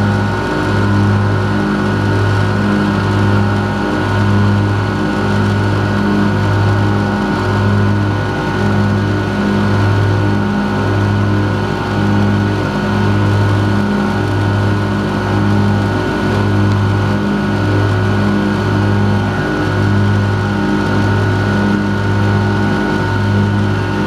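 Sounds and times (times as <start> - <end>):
lawn mower engine running: 0.0 - 24.0.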